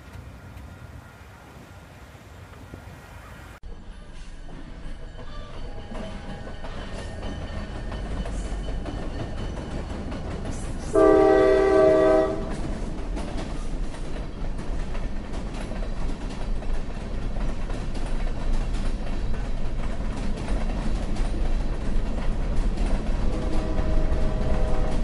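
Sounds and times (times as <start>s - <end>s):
locomotive horn: 0.0s - 3.6s, 10.9s - 12.6s, 23.2s - 25.0s
freight train rumbling: 0.0s - 25.0s.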